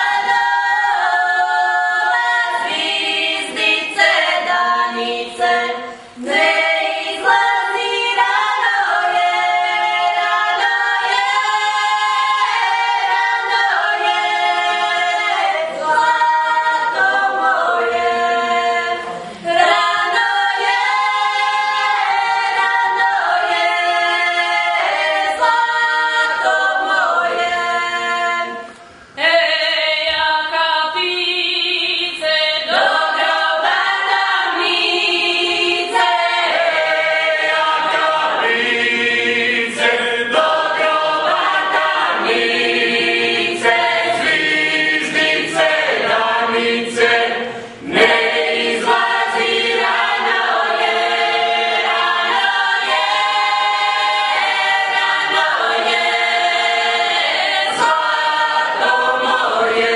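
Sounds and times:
women singing a cappella: 0.0s - 59.9s
singers breathing: 5.8s - 6.2s, 47.5s - 47.9s.

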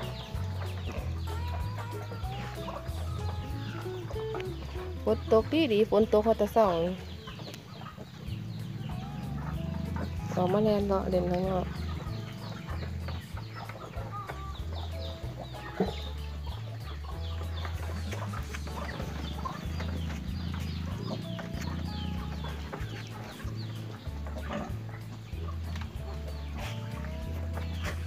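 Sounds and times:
chickens clucking: 0.0s - 28.0s
chicks peeping: 0.0s - 28.0s
low pulsing hum: 8.0s - 13.6s, 16.0s - 28.0s.

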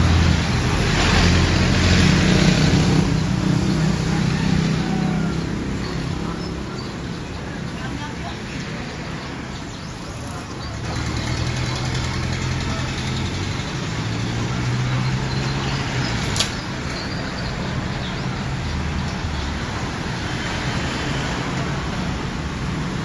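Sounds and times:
engine humming: 0.0s - 23.0s
sharp click: 16.2s - 16.6s.

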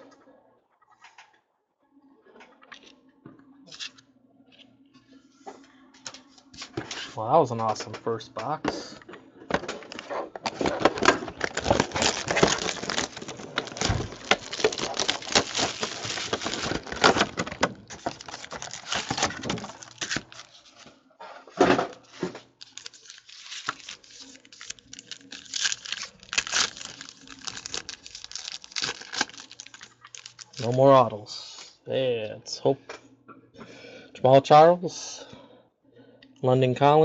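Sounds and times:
packaging crinkling: 9.8s - 20.8s, 21.9s - 31.1s
plastic card boxes clicking: 9.9s - 20.6s, 22.6s - 30.8s
foil pack tearing: 10.5s - 20.8s, 21.9s - 31.1s.

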